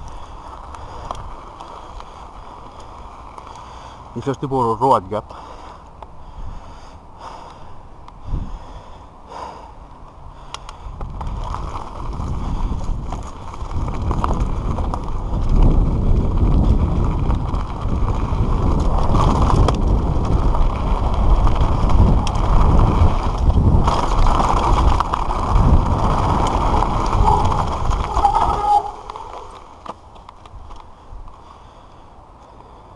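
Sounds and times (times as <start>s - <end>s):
bike tyres rattling over stones: 0.0s - 9.7s, 10.4s - 32.9s
wind on microphone: 8.2s - 8.8s, 10.8s - 29.7s.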